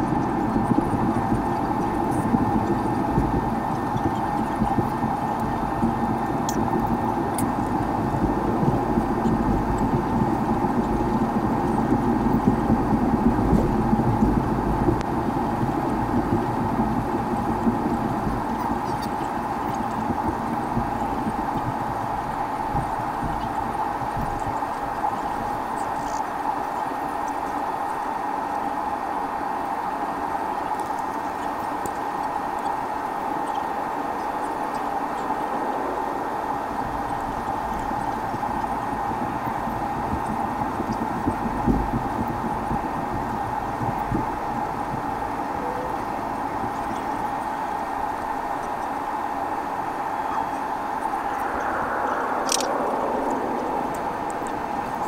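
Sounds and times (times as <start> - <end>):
jet engines humming in cabin: 0.0 - 55.0
airframe rolling rumble: 34.2 - 55.0.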